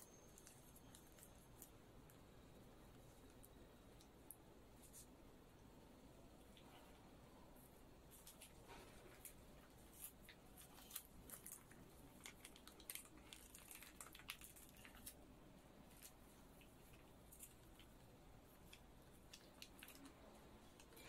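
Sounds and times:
plastic pouch crinkling: 8.1 - 15.2, 15.8 - 21.0.

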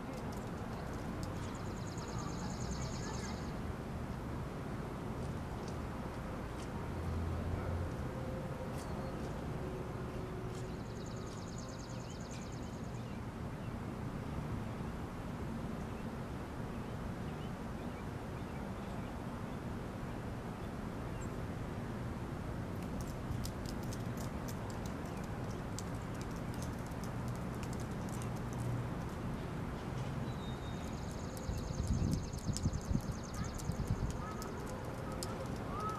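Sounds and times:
sharp clicks and ticks: 22.8 - 29.2, 31.1 - 35.9.

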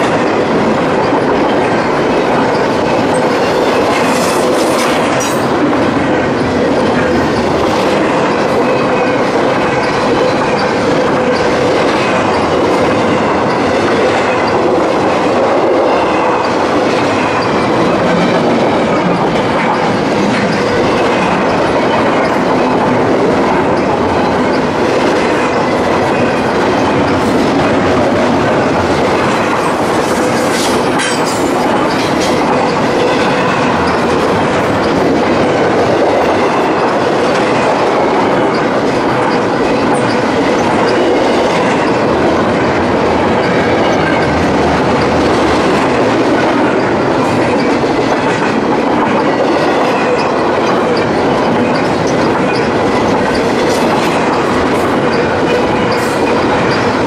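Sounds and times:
freight train rumbling past: 0.0 - 57.0.

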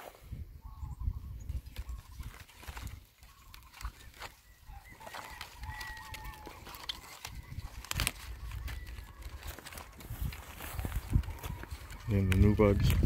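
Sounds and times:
chicken calling: 3.3 - 12.6.

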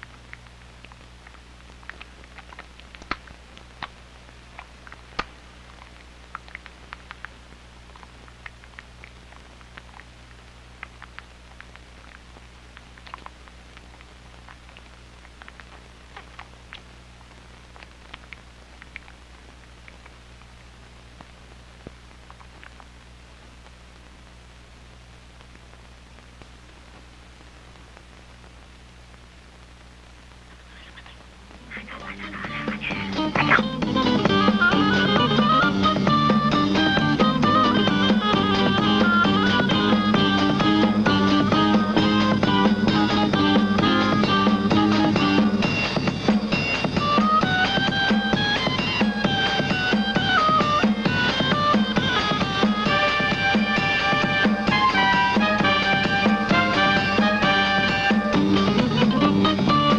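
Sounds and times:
faint clicks and pops: 0.0 - 33.8
film soundtrack crackle: 0.0 - 59.9
low steady hum: 0.0 - 59.9.

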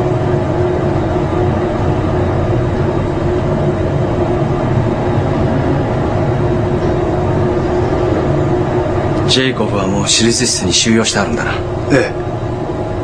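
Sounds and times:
steady mechanical drone: 0.0 - 13.0
steady tones: 0.0 - 13.0.

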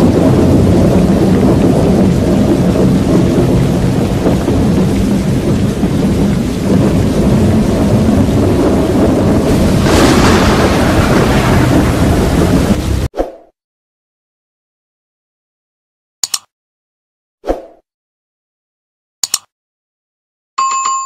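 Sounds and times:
stormy wind rumbling: 0.0 - 13.1.

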